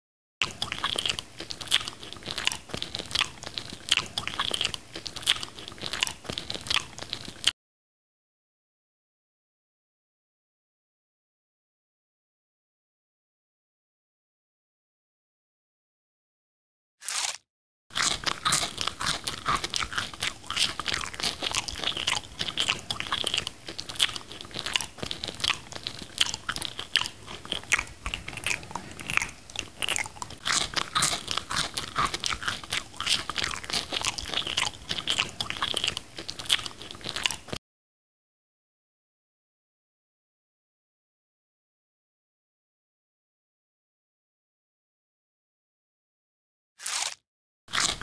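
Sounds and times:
chewing crunches: 0:00.4 - 0:07.6, 0:17.0 - 0:37.6, 0:46.8 - 0:48.0.

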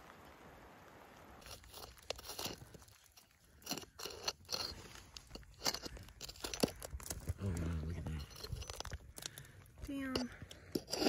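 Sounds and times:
faint steady hiss: 0:00.0 - 0:03.2
hammer digging into crumbly rock: 0:01.4 - 0:11.0.

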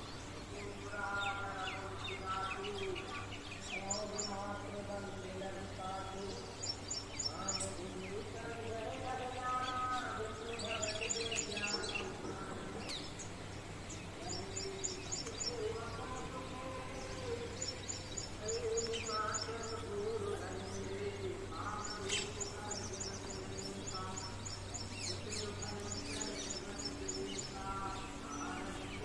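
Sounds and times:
low outdoor hum: 0:00.0 - 0:29.0
small birds chirping: 0:00.0 - 0:29.0.

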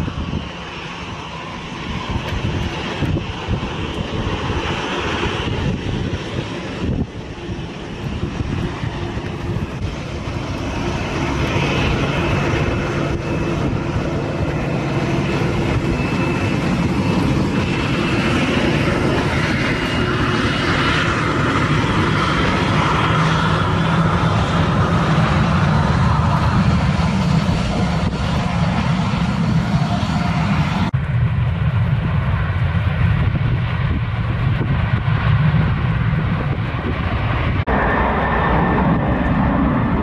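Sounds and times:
jet engines spooling up: 0:00.0 - 0:40.0.

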